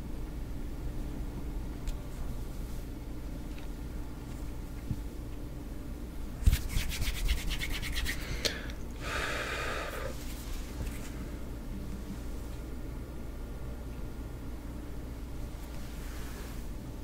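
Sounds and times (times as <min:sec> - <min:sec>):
palms rubbing together: 0:06.4 - 0:08.3, 0:10.1 - 0:11.2.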